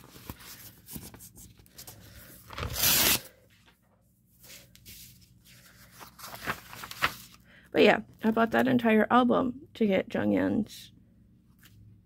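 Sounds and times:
rustling and handling: 0.0 - 7.4
packaging ripping: 2.5 - 3.3.

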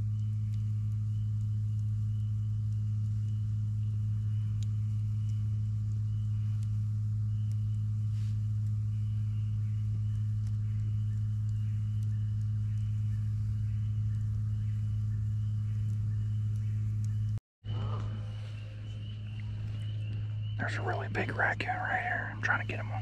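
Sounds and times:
faint clicks: 0.0 - 17.4
faint high chirping: 0.0 - 23.0
low mechanical hum: 0.0 - 23.0.

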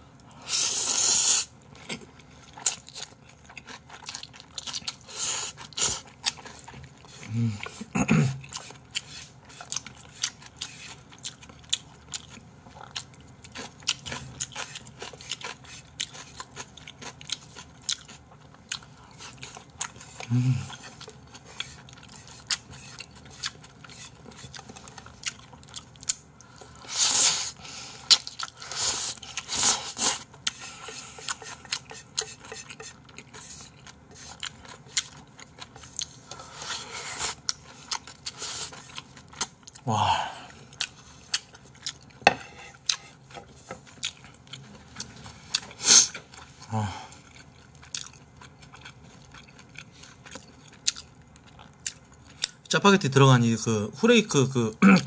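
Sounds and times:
chewing noodles: 0.2 - 39.9, 40.5 - 52.7
low voice hum: 20.2 - 20.8.

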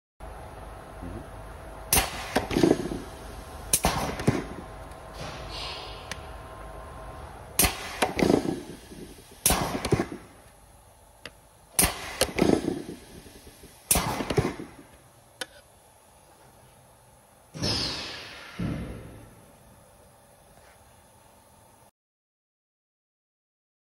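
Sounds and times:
press strokes cracking: 7.6 - 10.6.

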